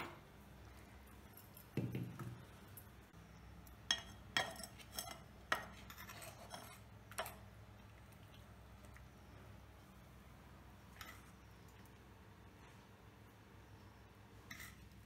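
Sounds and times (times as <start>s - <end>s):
dishes and utensils clinking: 3.8s - 7.4s.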